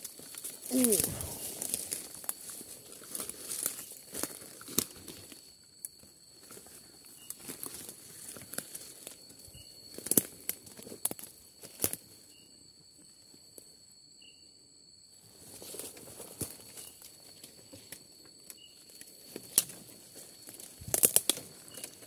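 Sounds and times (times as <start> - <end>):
footsteps in dry leaves: 0.5 - 4.5
steady high whine: 0.7 - 2.8
twigs cracking: 20.9 - 21.9.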